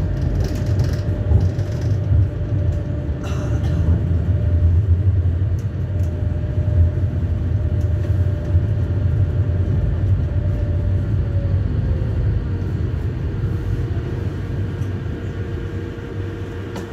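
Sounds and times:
electric tram rumbling: 0.0 - 16.9.

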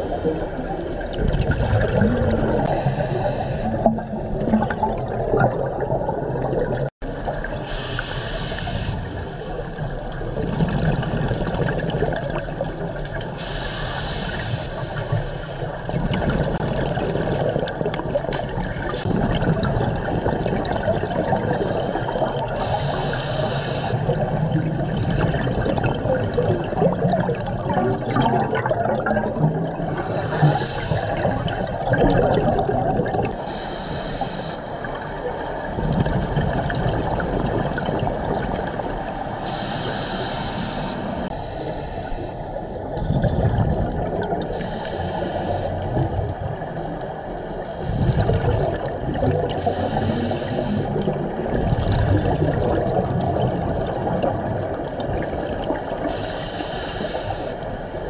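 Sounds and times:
bubbling exhaled air: 0.0 - 6.9, 10.4 - 34.4, 35.6 - 57.6
hissing regulator inhale: 2.7 - 3.9, 7.6 - 9.6, 13.4 - 15.8, 22.6 - 24.2, 29.9 - 31.3, 33.4 - 35.2, 39.4 - 42.9, 44.5 - 46.3, 49.6 - 51.1, 56.1 - 58.0.

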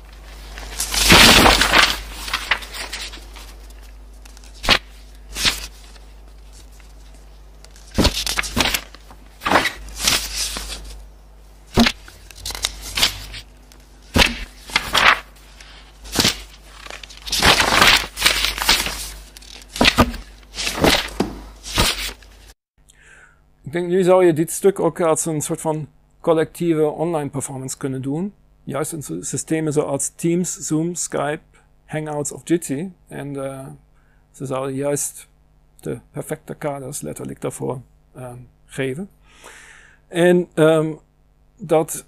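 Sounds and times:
book pages turning and flicking: 0.1 - 11.0, 11.7 - 22.4.

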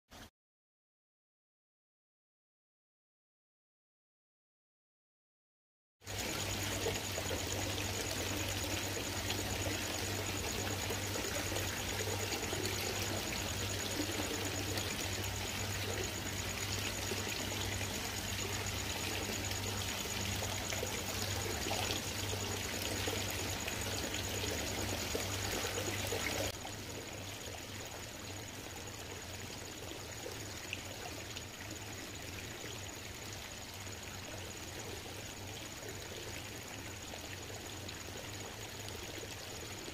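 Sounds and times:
water trickling: 6.0 - 39.9
low steady hum: 6.1 - 31.2.

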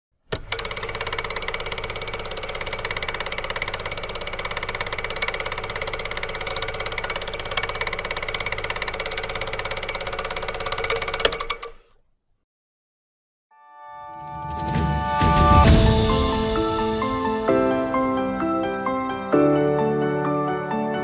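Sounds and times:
film projector clattering and whirring: 0.3 - 12.0.

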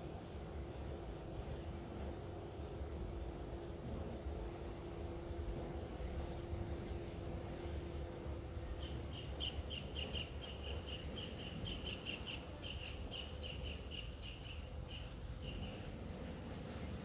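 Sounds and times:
small animal chirping: 8.8 - 15.8.

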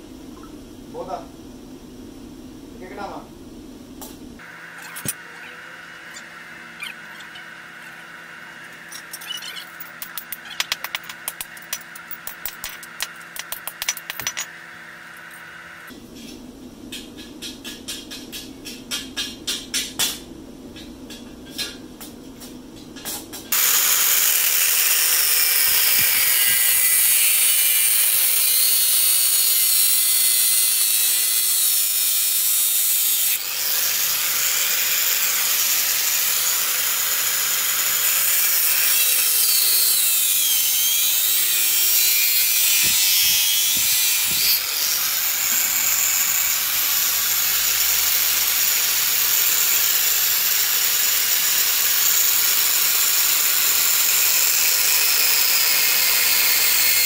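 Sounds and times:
angle grinder cutting metal: 4.4 - 16.0, 23.5 - 57.0.

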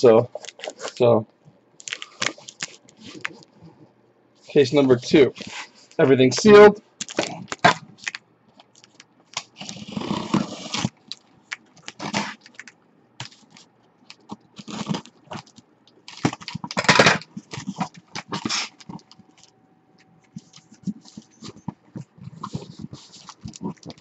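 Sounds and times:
cardboard scraping and rubbing: 9.6 - 11.0, 20.4 - 24.0.

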